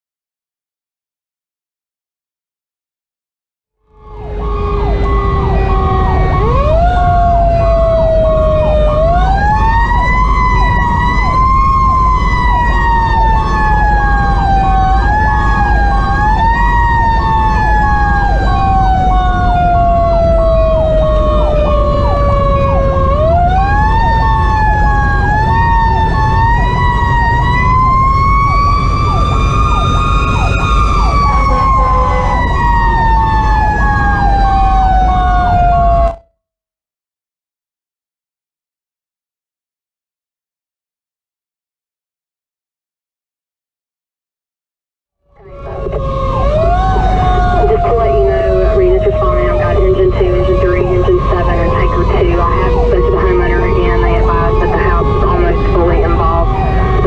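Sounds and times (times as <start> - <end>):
mechanical siren wailing: 3.8 - 36.3, 45.3 - 57.0
diesel engine low rumble: 4.0 - 35.8, 45.4 - 57.0.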